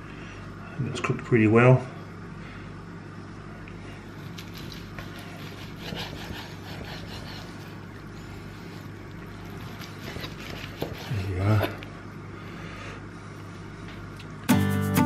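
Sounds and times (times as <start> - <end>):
steady low hum: 0.0 - 14.6
knife sawing through steak: 4.2 - 7.8, 8.8 - 11.7.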